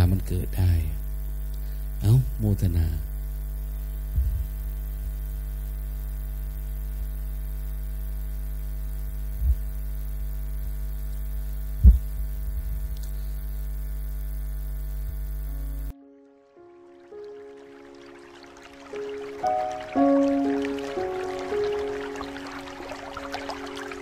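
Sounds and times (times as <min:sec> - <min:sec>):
electrical mains hum: 0:00.0 - 0:16.0
soft low bump: 0:11.8 - 0:13.0.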